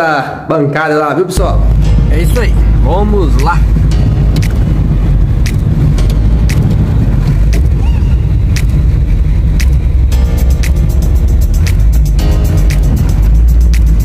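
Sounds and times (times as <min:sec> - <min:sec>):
car engine and road rumble: 0:01.4 - 0:14.0
sharp clicks: 0:08.5 - 0:08.8, 0:09.6 - 0:09.8.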